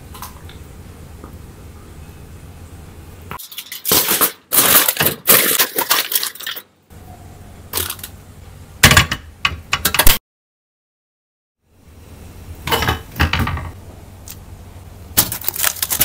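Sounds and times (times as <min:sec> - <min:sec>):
aluminium foil crinkling: 0:03.4 - 0:06.6, 0:15.2 - 0:16.0.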